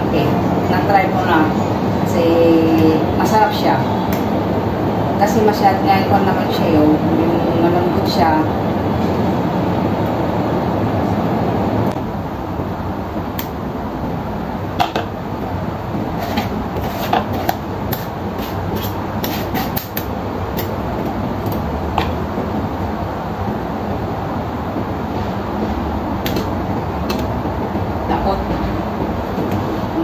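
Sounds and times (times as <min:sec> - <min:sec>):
steady background hum: 0:00.0 - 0:30.0
spoon scraping pulp in strainer: 0:16.1 - 0:20.0.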